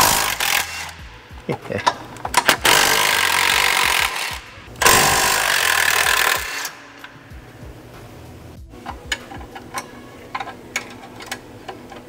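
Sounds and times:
impact wrench hammering: 0.0 - 7.2.

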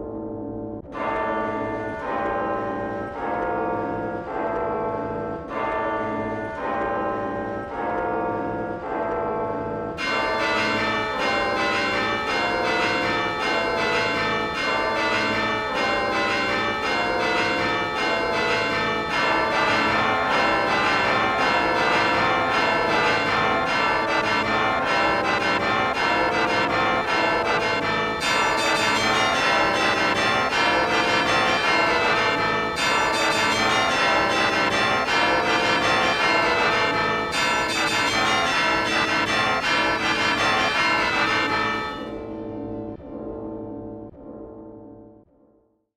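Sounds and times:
dense overlapping bell tones: 1.0 - 43.4.

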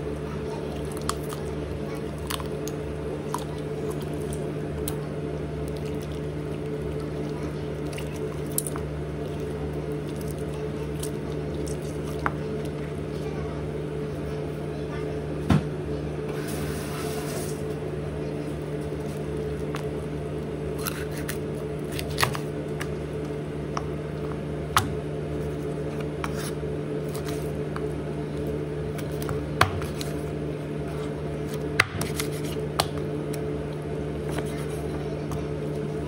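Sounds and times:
steady mechanical hum: 0.0 - 36.0
knife cutting meat: 20.8 - 22.5, 26.2 - 27.5, 31.5 - 32.7.

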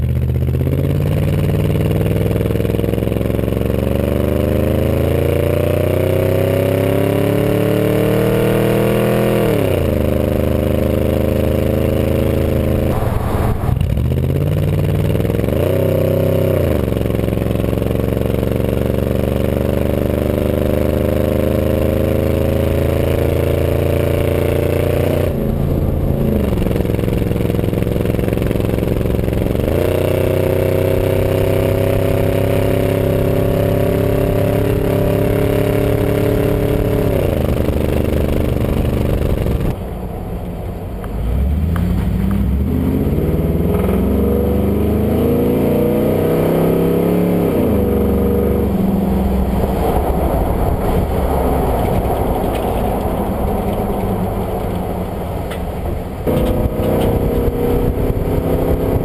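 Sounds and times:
truck engine through loud exhaust: 0.0 - 59.0.

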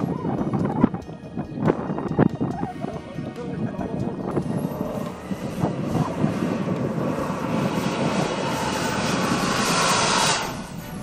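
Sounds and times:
model jet turbine hissing: 4.6 - 11.0.

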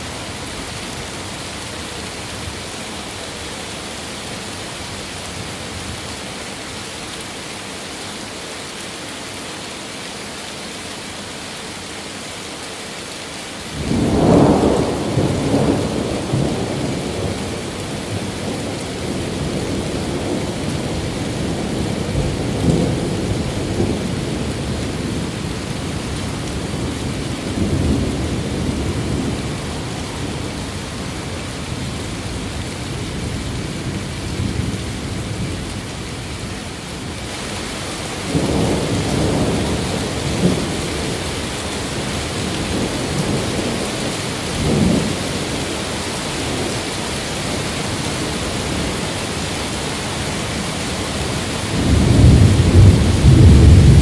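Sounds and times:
steady rain: 0.0 - 54.0
thunder crack and rumble: 51.7 - 54.0.

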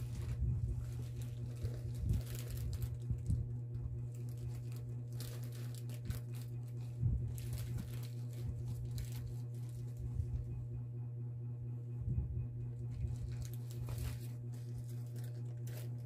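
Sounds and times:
plastic pouch crinkling: 0.0 - 10.1, 12.8 - 16.0
steady low hum: 0.0 - 16.0.

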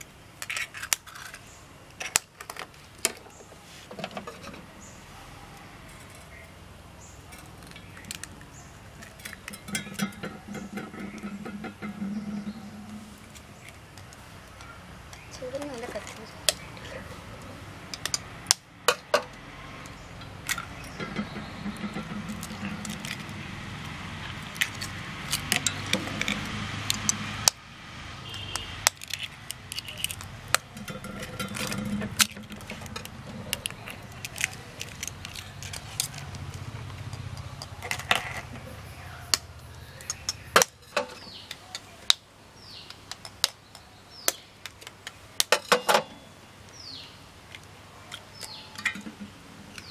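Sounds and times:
knife clinking steel pot: 9.1 - 13.0.

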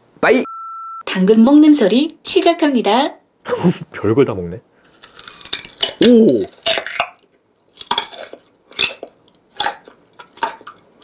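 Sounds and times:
carrot crunching: 4.9 - 10.9.

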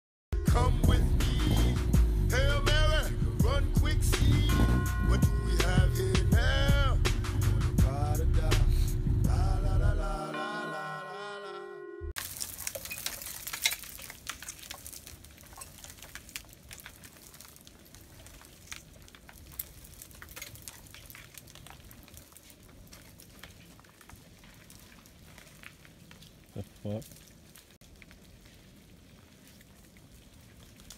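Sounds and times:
ice-coated branches crackling: 0.4 - 10.0, 12.2 - 30.9
intro music: 0.4 - 12.1.

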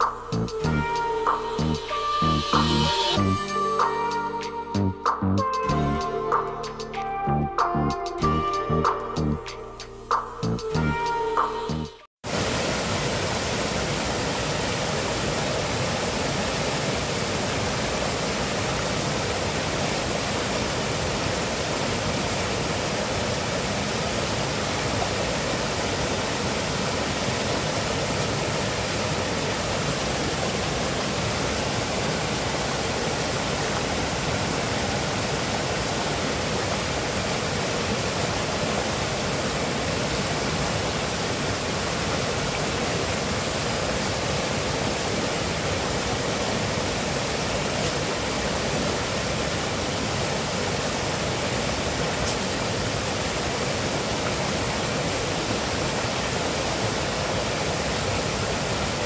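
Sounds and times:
river rushing over rocks: 12.3 - 59.0.

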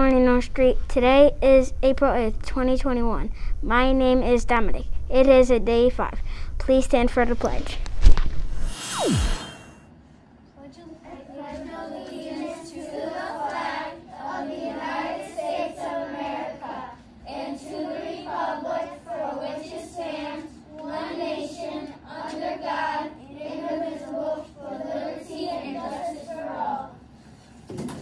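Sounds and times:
children reciting in unison: 11.1 - 27.1.

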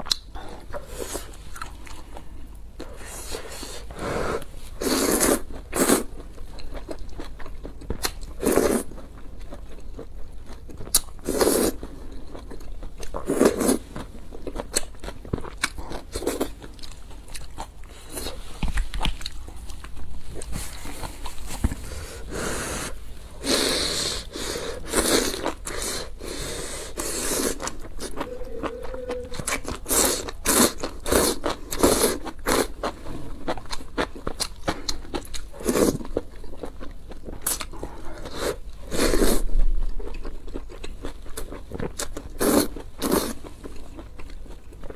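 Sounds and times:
person chewing: 0.0 - 44.9
person slurping noodles: 22.0 - 32.7.

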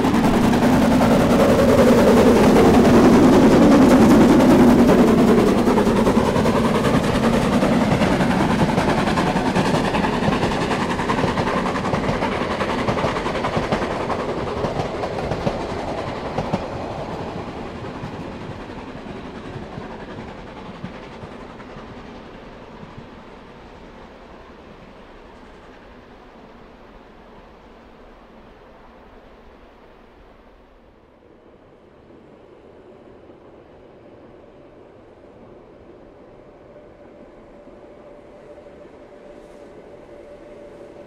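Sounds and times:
steam locomotive exhaust beats: 0.0 - 26.5, 36.1 - 41.0.

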